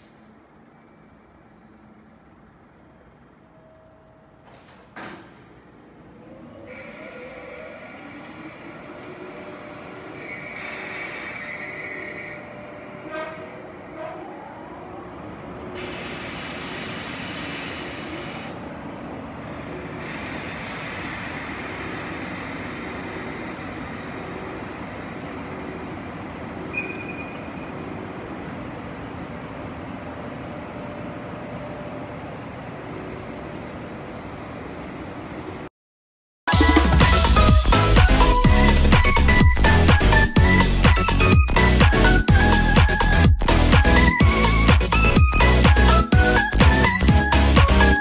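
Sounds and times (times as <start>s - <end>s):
locomotive mechanical hum: 0.2s - 35.7s
brief high squeal: 6.7s - 14.5s, 26.7s - 27.8s
loud air hiss: 15.8s - 18.6s, 19.9s - 26.0s.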